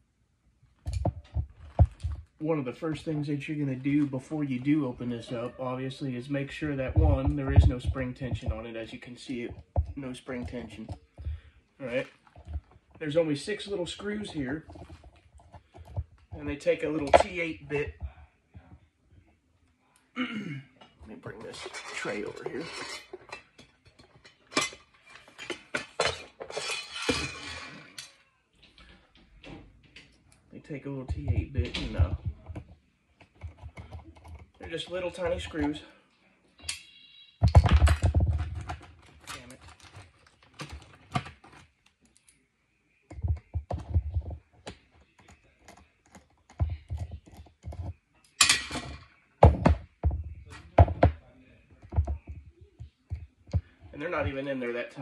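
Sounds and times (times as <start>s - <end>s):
metal tray clinking and rattling: 21.3s - 28.1s.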